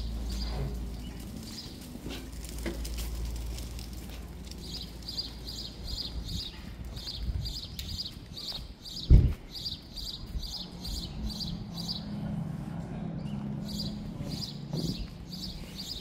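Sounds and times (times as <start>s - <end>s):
footsteps on wet pavement: 0.0s - 11.5s.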